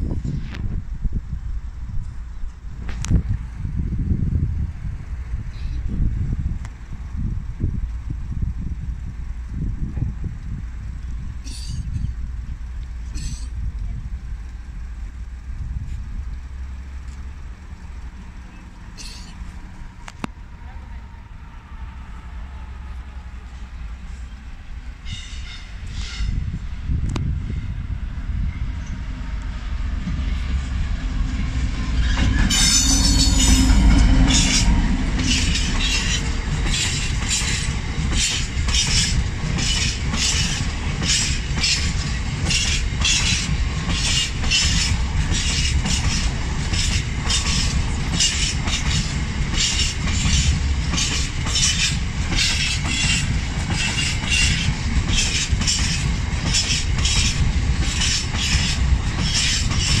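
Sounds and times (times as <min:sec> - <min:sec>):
diesel locomotive engine: 0:00.0 - 1:00.0
train wheels clicking over rail joints: 0:07.6 - 0:20.4, 0:28.7 - 1:00.0
high wheel squeal: 0:11.4 - 0:12.2, 0:18.5 - 0:19.5, 0:31.9 - 0:37.6, 0:51.1 - 1:00.0.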